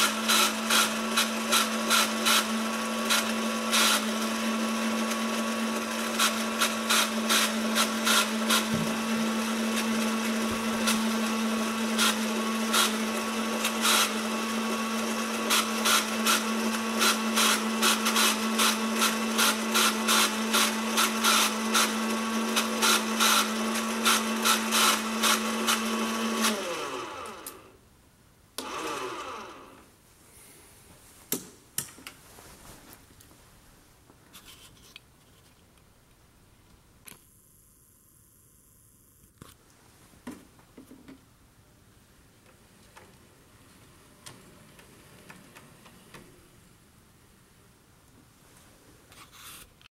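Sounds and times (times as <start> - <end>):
small electric motor whining: 0.0 - 27.7, 28.6 - 29.8.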